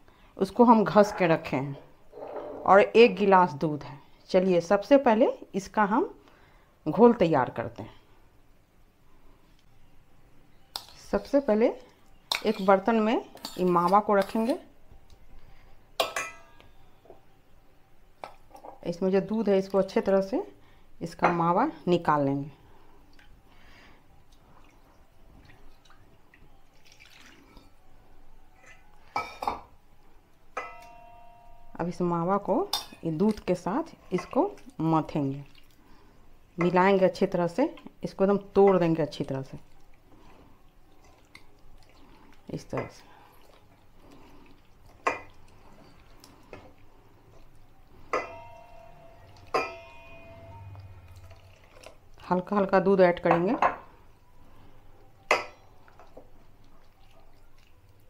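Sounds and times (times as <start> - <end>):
spoon clinking: 16.0 - 16.7, 30.6 - 31.6, 48.1 - 51.4
spoon tapping a vessel: 30.6 - 31.2, 48.2 - 48.8, 49.4 - 50.6.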